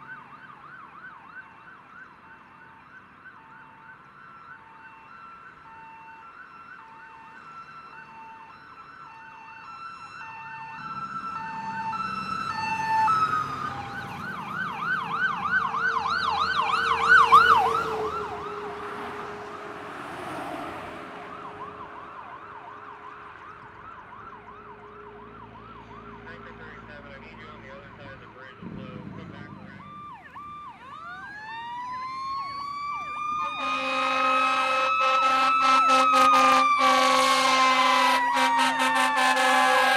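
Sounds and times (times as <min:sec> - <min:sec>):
fast yelp siren: 0:00.0 - 0:27.8, 0:29.2 - 0:39.9
hi-lo siren: 0:00.0 - 0:39.9
rising wail siren: 0:00.0 - 0:39.9
loud horn blast: 0:33.4 - 0:39.9.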